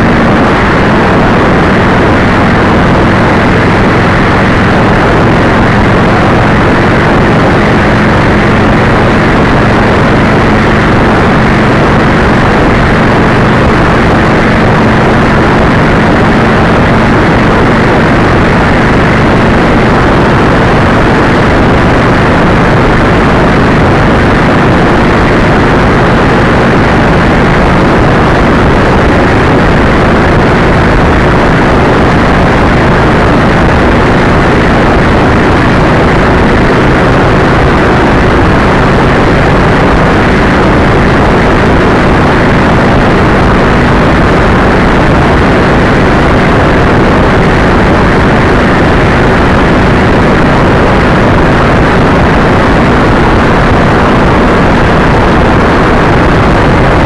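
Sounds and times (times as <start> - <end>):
engine drone: 0.0 - 57.0
wind buffeting microphone: 0.0 - 57.0.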